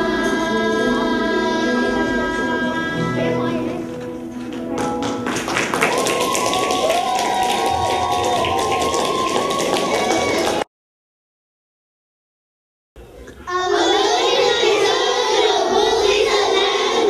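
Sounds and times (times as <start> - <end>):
group of singers singing chord: 0.0 - 4.0, 13.5 - 17.0
audience applause: 4.8 - 10.7
person cheering: 5.9 - 10.6.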